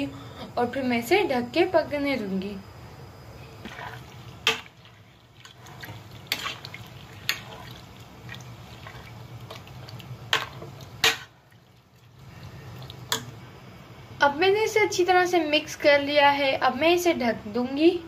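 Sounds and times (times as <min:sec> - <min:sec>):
liquid sloshing and splashing: 0:03.6 - 0:13.3.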